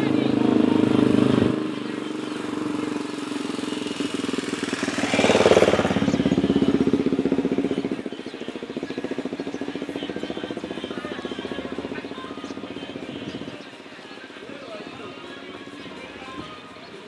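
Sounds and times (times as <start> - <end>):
car engine revving: 0.0 - 13.7
diesel engine idling throb: 0.0 - 14.4.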